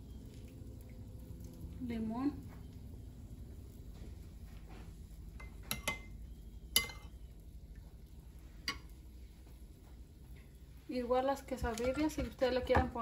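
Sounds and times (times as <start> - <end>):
metal spoon clinking on ceramic bowl: 5.4 - 6.1, 6.7 - 7.2.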